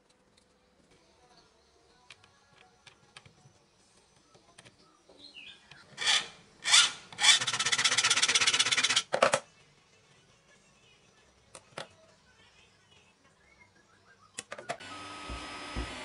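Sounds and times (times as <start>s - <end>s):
steel ruler scraping metal: 6.0s - 9.1s.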